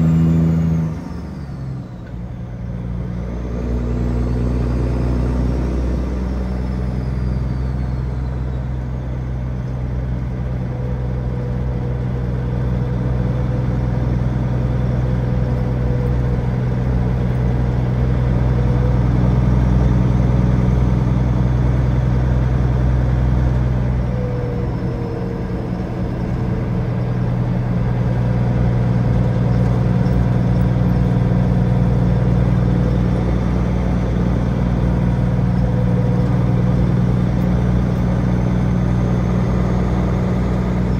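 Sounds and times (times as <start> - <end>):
truck diesel engine drone: 0.0 - 40.9.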